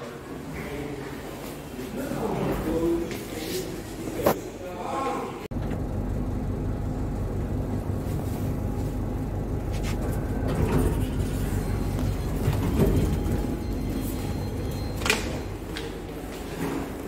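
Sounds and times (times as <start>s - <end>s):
lift cabin low hum: 5.4s - 17.0s.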